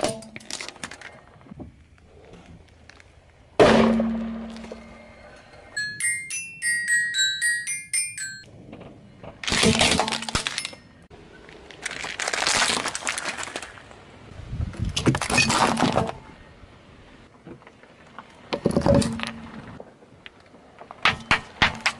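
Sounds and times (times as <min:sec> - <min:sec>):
tyre crushing plastic toys: 0:00.0 - 0:01.2, 0:09.4 - 0:10.8, 0:11.5 - 0:13.9, 0:14.9 - 0:16.2.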